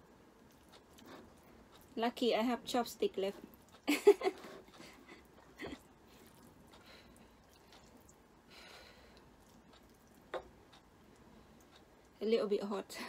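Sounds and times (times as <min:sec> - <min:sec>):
faint breath: 0:08.5 - 0:09.3.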